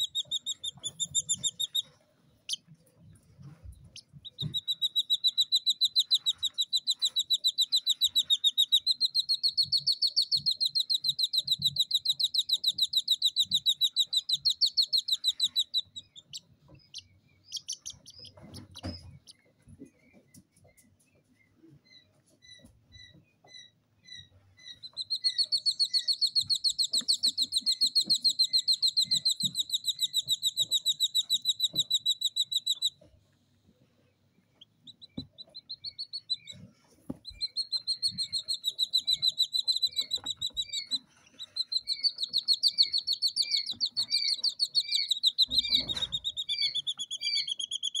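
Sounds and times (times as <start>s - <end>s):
quail chicks peeping: 0.0s - 48.0s.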